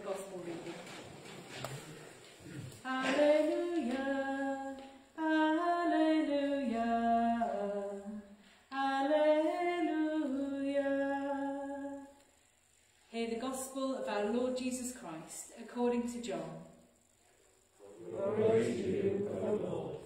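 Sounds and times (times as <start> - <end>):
person singing unaccompanied: 2.8 - 12.2.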